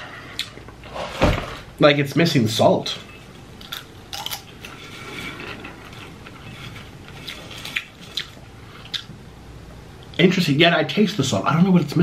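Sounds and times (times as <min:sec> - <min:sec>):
person chewing popcorn: 0:03.6 - 0:04.8, 0:06.0 - 0:09.2.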